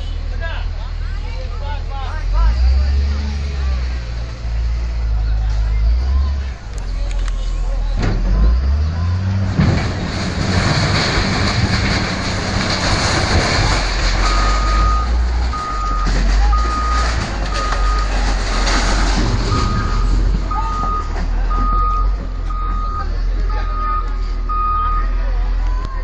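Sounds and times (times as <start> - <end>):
heavy vehicle engine rumble: 0.0 - 26.0
reversing alarm beeping: 14.2 - 18.9, 19.5 - 26.0.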